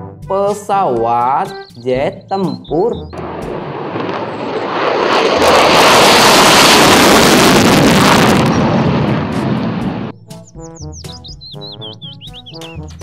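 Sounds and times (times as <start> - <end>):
jet engine rush: 3.2 - 10.1.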